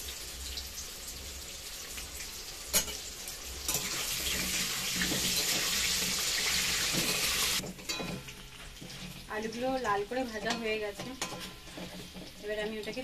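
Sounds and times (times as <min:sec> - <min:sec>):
potatoes sizzling in hot oil: 0:00.0 - 0:13.0.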